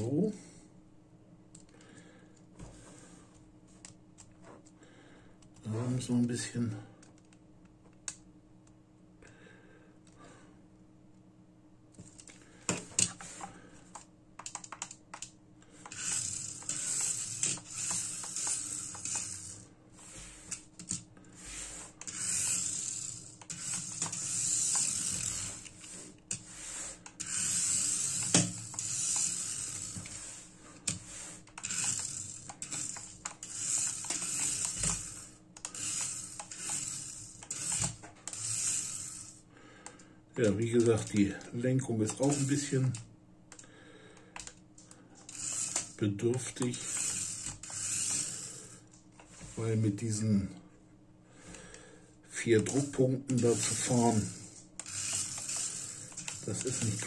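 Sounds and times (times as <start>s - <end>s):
sharp clicks: 14.0s - 15.4s
small electric motor whirring: 15.8s - 20.7s, 21.4s - 39.4s, 42.1s - 43.0s, 45.2s - 49.6s, 52.7s - 57.0s.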